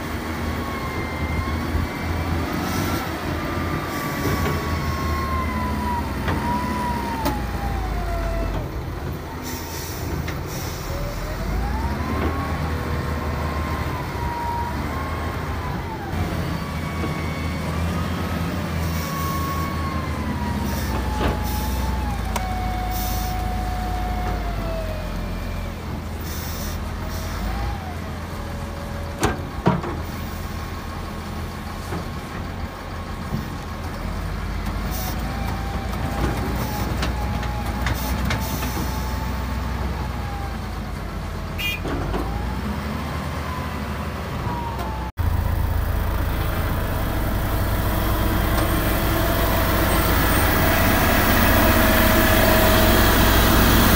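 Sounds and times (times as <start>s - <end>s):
diesel engine working hard: 0.0s - 53.9s.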